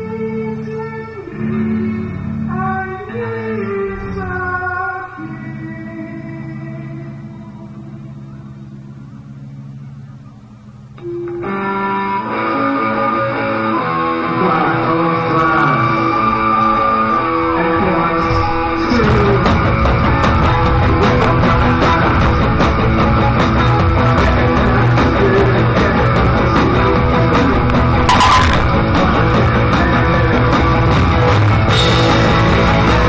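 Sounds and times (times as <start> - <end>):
live rock band playing: 18.5 - 33.0
drum kit: 27.8 - 29.6.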